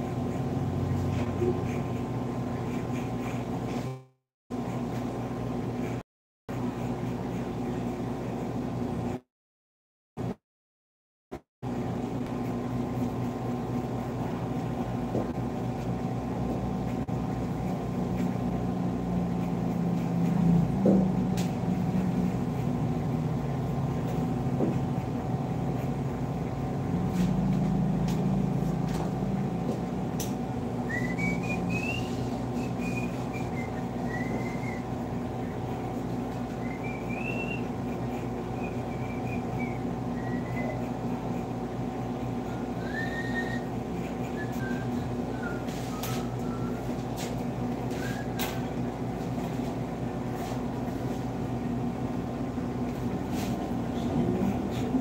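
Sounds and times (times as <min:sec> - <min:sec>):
electrical hum: 0:11.6 - 0:55.0
person whistling a tune: 0:30.9 - 0:34.8, 0:42.8 - 0:43.6.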